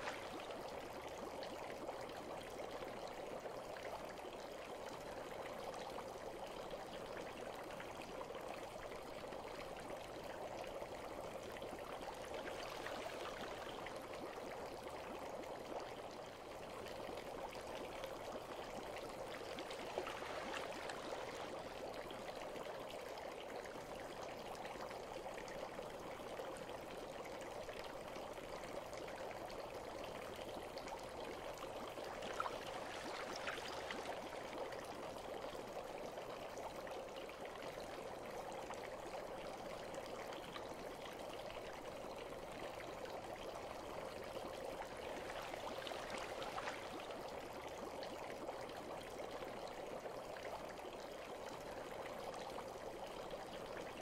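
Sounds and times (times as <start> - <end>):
water drips: 0.0 - 2.2, 17.6 - 22.8, 29.5 - 36.2, 44.2 - 48.8
running water trickling: 0.0 - 3.5, 6.2 - 54.0.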